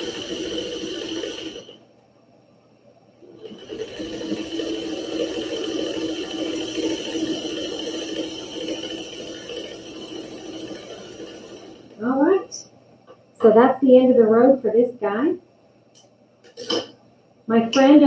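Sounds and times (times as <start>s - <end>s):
sewing machine whirring: 0.0s - 1.8s, 3.2s - 12.6s.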